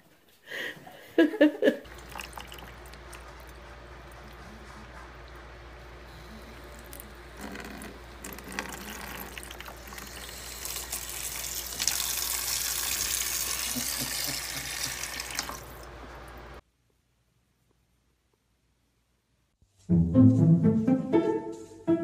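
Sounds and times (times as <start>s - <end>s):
tap water running into plastic container: 1.9s - 3.5s, 6.7s - 15.9s.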